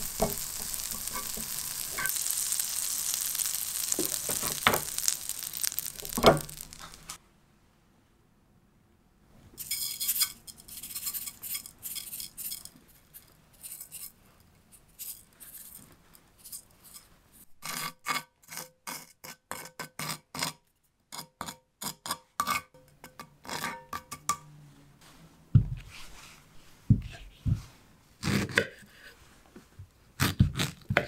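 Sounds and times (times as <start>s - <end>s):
sugar grains rustling: 0.0s - 7.2s
wooden spoon scraping a pan: 0.0s - 7.2s.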